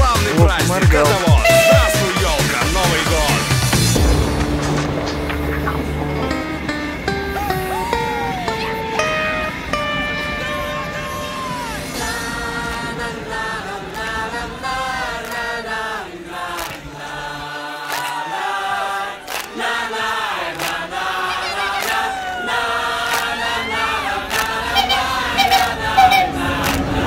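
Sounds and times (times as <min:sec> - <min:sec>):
choir singing held chords: 0:00.0 - 0:27.0.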